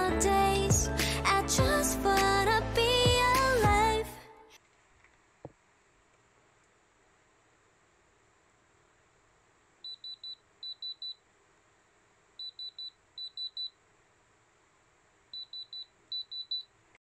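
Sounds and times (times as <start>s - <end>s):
high-pitched tester beeps: 9.9s - 11.2s, 12.4s - 13.8s, 15.4s - 16.7s.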